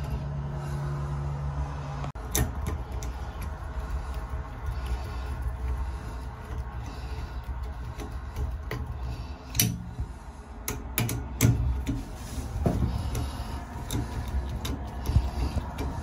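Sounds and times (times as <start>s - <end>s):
screwdriver driving a screw: 2.2s - 9.8s, 10.7s - 12.0s, 12.8s - 16.0s
sharp metal clicks and taps: 2.2s - 12.0s, 13.1s - 16.0s.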